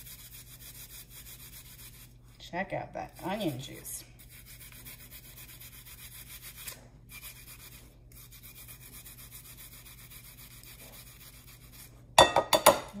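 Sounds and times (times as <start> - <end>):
onion rasping on metal grater: 0.0 - 2.1, 3.1 - 12.0.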